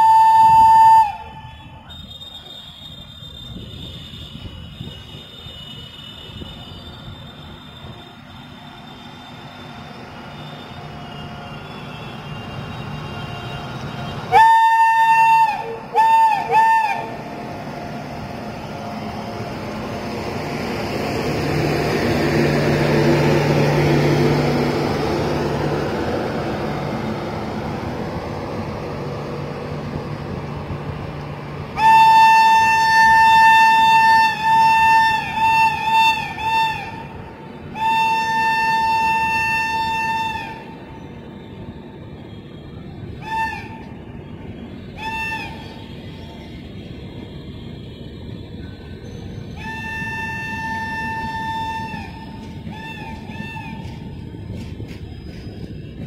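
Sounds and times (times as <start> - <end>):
shrill train horn: 0.0 - 20.3, 31.7 - 54.6
train passing: 0.0 - 56.0.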